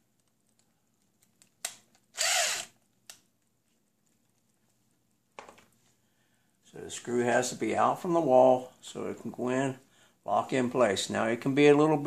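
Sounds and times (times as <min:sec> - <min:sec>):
cordless drill spinning screw: 0:02.1 - 0:02.8.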